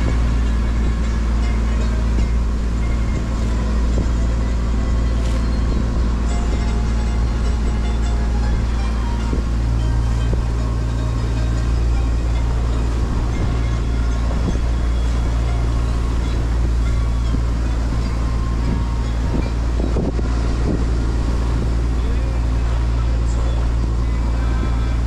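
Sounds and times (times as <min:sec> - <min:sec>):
boat engine humming: 0:00.0 - 0:25.0
wind noise on microphone: 0:00.0 - 0:25.0.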